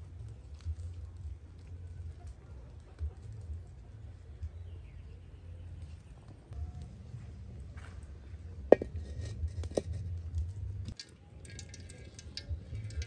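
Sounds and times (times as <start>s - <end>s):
oil crackling and sizzling: 0.0s - 3.6s, 8.7s - 13.0s
metal wok clinking: 8.7s - 10.0s, 10.9s - 13.0s.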